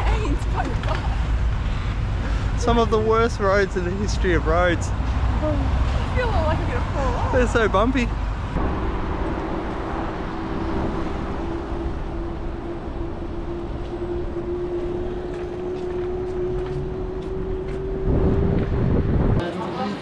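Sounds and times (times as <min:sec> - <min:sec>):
rumbling road jolts: 0:00.0 - 0:19.4
wind: 0:00.0 - 0:20.0
electric bike motor whine: 0:10.4 - 0:19.4.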